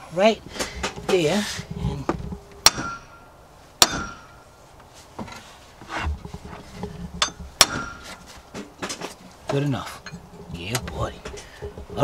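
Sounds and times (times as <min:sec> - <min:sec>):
hammer striking metal wrench: 0:03.8 - 0:04.4.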